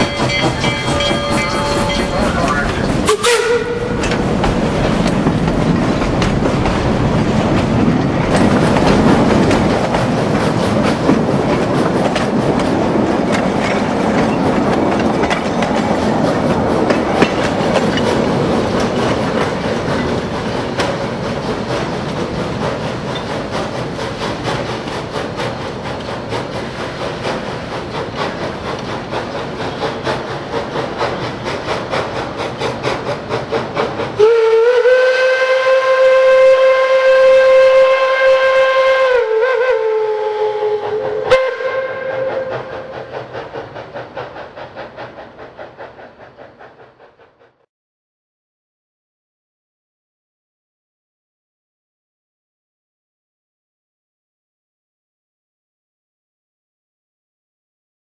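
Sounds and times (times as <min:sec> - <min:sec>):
train wheels clicking over rail joints: 0:00.0 - 0:34.5, 0:42.0 - 0:47.7.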